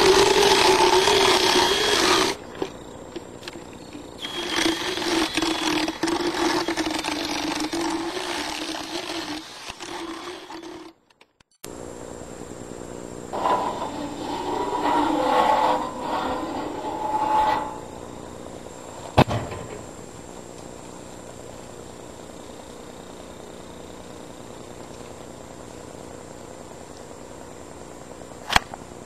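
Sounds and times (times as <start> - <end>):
motorized dental float grinding: 0.0 - 11.0, 13.3 - 18.4.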